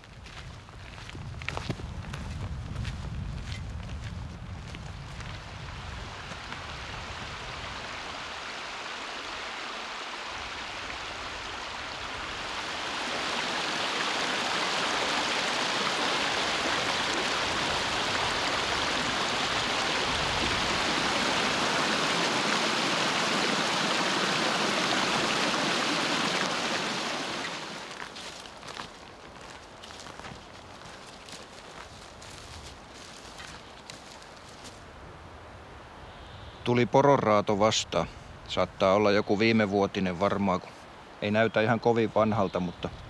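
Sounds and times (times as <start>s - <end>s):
river water rushing: 5.9s - 31.8s.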